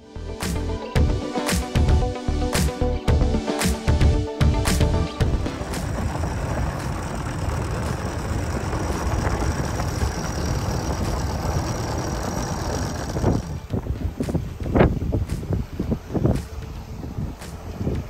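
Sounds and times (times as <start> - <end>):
boat engine running: 0.0 - 18.0
choppy sound: 3.5 - 14.6.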